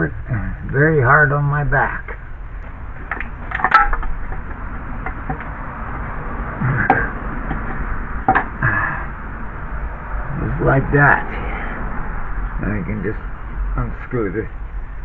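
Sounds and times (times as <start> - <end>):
metal parts knocking: 3.0 - 5.5, 6.8 - 8.6.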